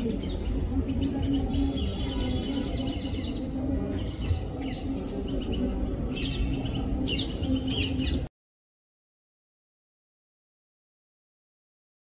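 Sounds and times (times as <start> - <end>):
songbirds chirping: 0.0 - 8.3.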